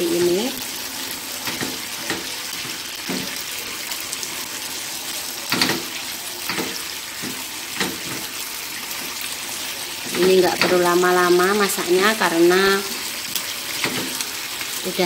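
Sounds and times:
food sizzling in a frying pan: 0.0s - 15.0s
spatula scraping a pan: 5.5s - 10.9s.

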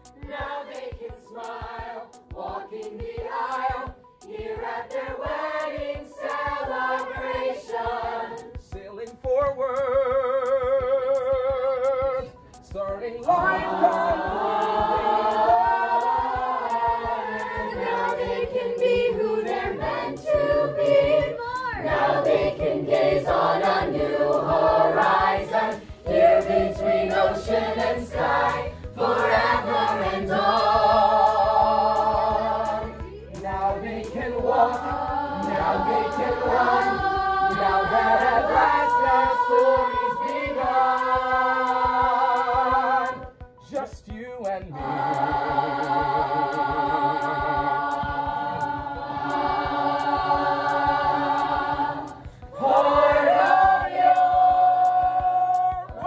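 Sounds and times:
children singing in chorus: 13.3s - 43.2s, 44.8s - 56.0s.

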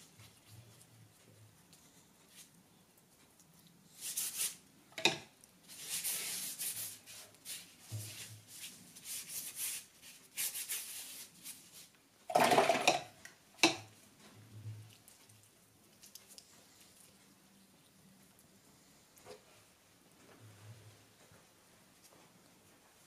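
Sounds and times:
paintbrush scrubbing on paper: 4.0s - 4.6s, 5.6s - 12.0s
brush clicking against paint pots: 12.5s - 13.9s.

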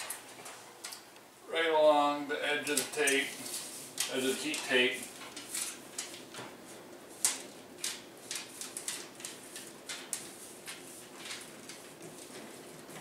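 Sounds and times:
foil tape crinkling: 2.6s - 13.0s.

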